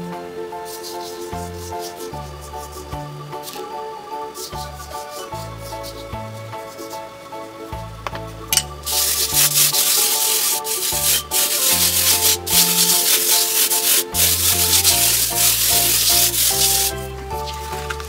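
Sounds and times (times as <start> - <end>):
background music: 0.0 - 18.0
sand rubbed on sheet rasping: 0.7 - 3.6, 8.9 - 17.8.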